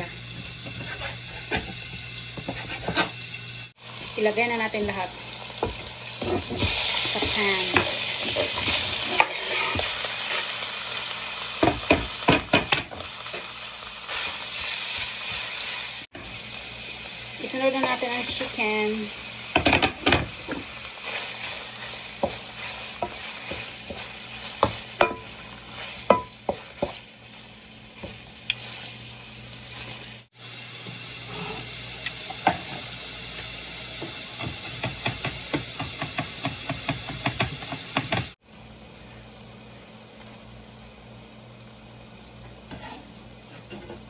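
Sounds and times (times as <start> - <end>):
meat sizzling in a frying pan: 0.0 - 39.7
spatula knocking: 23.0 - 25.3, 26.0 - 27.0.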